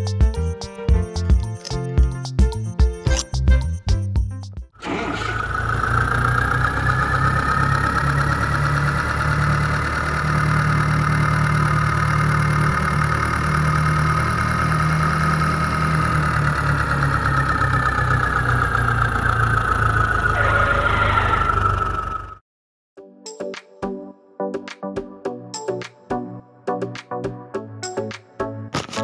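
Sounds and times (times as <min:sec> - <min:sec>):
tractor engine chugging: 0:04.8 - 0:22.4
high steady whine: 0:20.3 - 0:22.4.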